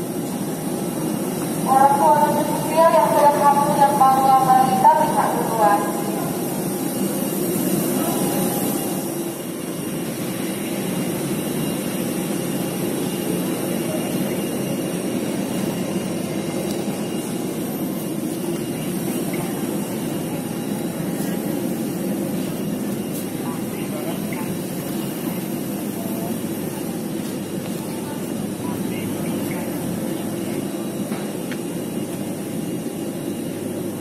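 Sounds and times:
jet engine roar: 0.0 - 34.0
faint high whining tones: 0.1 - 34.0.

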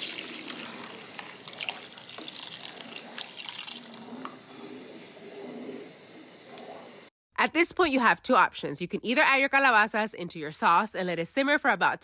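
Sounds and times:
water pouring into sauce: 0.0 - 4.5.

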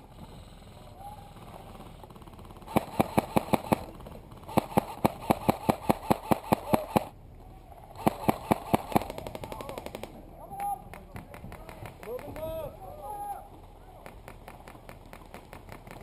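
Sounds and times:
airsoft rifle rapid fire: 1.8 - 7.2, 8.0 - 10.2.

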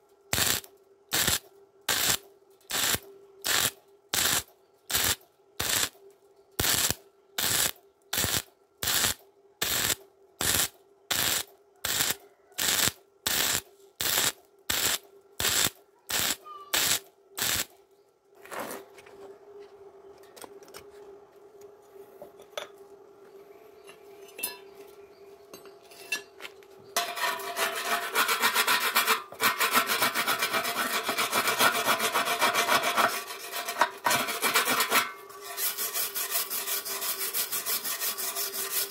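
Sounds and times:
steady hum: 0.0 - 18.0
welding arc bursts: 0.3 - 6.0, 6.6 - 17.7
wire brush scrubbing metal: 1.2 - 5.9, 27.0 - 38.9.

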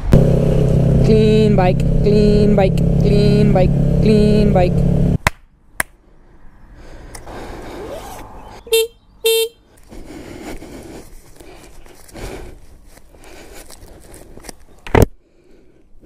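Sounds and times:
faint outdoor background: 0.0 - 16.0
vehicle horn toots: 8.7 - 9.7.

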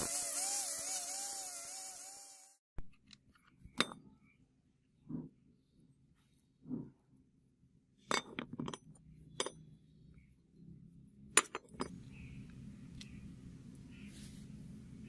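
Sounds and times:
metal parts clinking on concrete: 8.1 - 9.7, 11.4 - 12.0.

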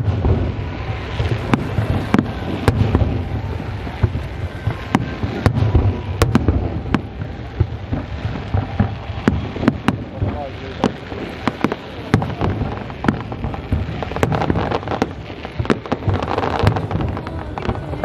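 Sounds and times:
fireworks bangs: 0.0 - 18.0
low rumble of fireworks bursts: 0.0 - 18.0.

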